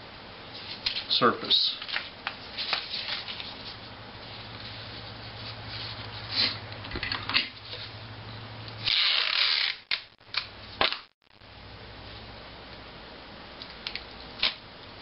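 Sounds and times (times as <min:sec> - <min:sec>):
paper rustling: 0:01.7 - 0:06.5.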